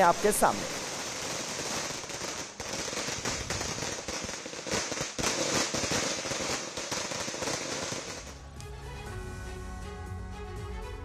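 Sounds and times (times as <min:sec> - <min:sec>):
firecrackers crackling: 0:00.0 - 0:08.4.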